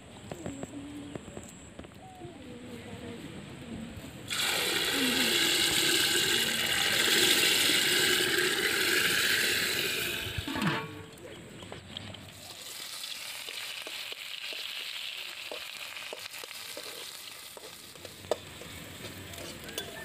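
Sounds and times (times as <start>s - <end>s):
rice pouring into pot: 4.3s - 10.6s.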